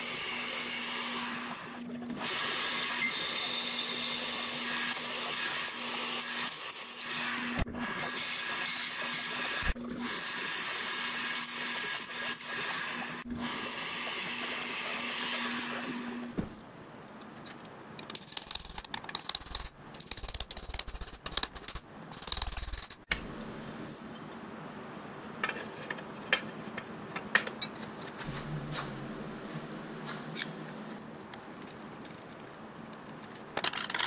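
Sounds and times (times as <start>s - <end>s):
milling machine drilling metal: 0.0s - 16.3s.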